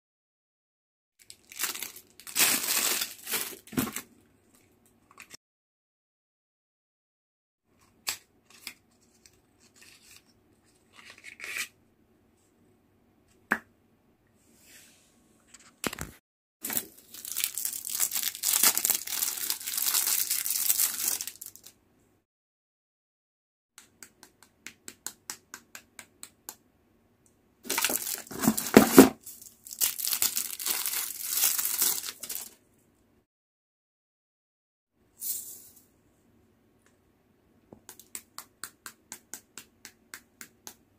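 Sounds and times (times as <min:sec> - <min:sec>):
plastic packaging crinkling: 0:01.2 - 0:04.1, 0:16.6 - 0:21.7, 0:27.7 - 0:32.6.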